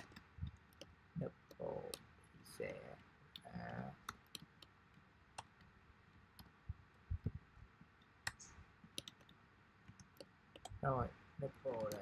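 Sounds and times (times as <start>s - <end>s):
keyboard keystrokes: 8.2s - 10.8s, 11.7s - 12.0s.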